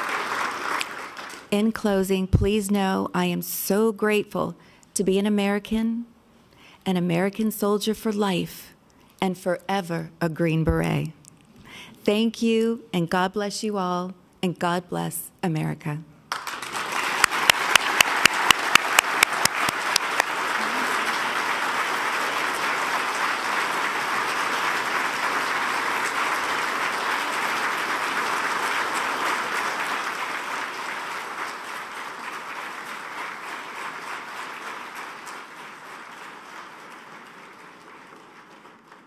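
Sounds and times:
audience applauding: 0.0s - 1.5s, 16.3s - 39.0s
close sharp claps: 0.0s - 1.5s, 16.3s - 39.0s.

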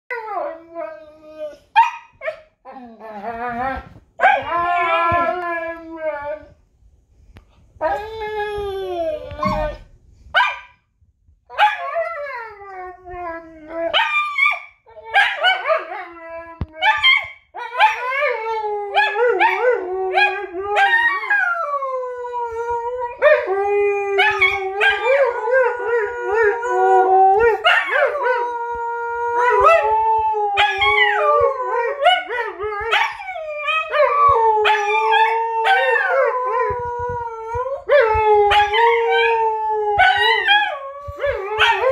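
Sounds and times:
dog howling: 17.6s - 41.9s.

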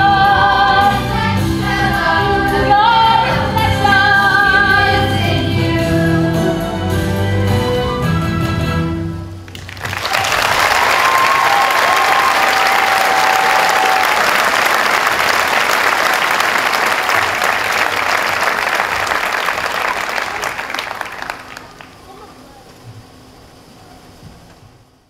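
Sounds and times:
audience applause: 9.5s - 22.3s
crowd cheering: 9.5s - 22.3s.

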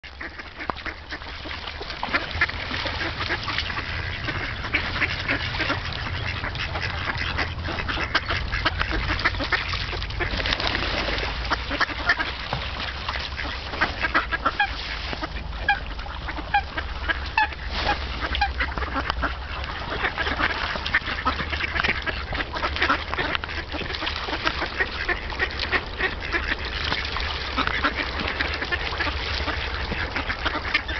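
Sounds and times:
ducks quacking: 0.0s - 30.9s
steady low rumble: 0.1s - 30.9s.

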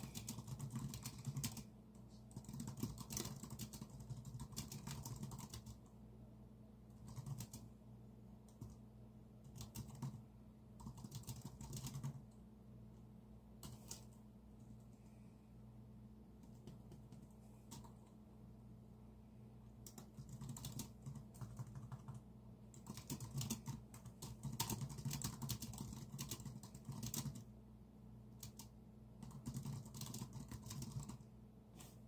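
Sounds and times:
typing on computer keyboard: 0.0s - 1.7s, 2.3s - 5.9s, 6.9s - 7.7s, 8.5s - 8.8s, 9.4s - 10.2s, 10.8s - 12.4s, 13.6s - 14.2s, 16.4s - 18.1s, 19.8s - 27.5s, 28.4s - 31.3s.

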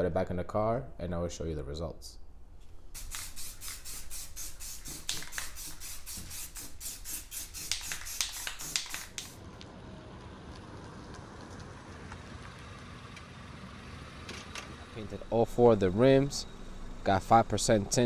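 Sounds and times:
spray can ball rattling: 2.9s - 9.4s.

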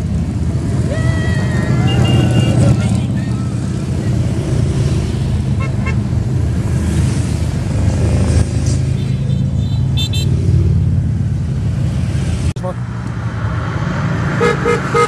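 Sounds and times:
motorcycle engines rumbling: 0.0s - 15.0s
horn double beeps: 1.9s - 3.0s.

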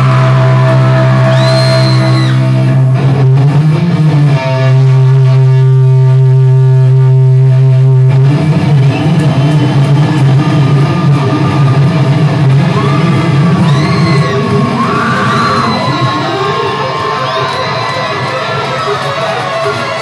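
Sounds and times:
crowd yelling: 0.0s - 2.9s, 8.4s - 20.0s
electric guitar playing: 0.0s - 20.0s.

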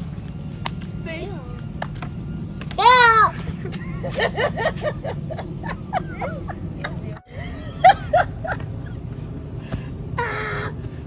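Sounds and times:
steady low hum: 0.0s - 11.0s
people laughing: 3.4s - 9.4s.

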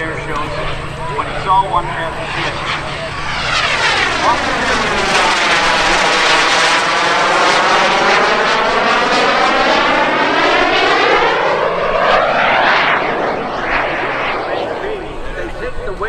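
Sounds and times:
small jet engine roaring: 0.0s - 16.0s.

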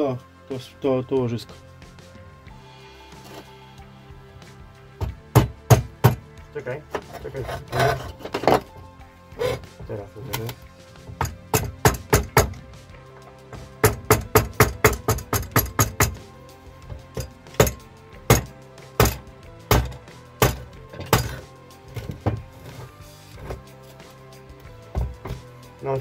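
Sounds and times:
hammer blows on metal: 16.8s - 22.9s.

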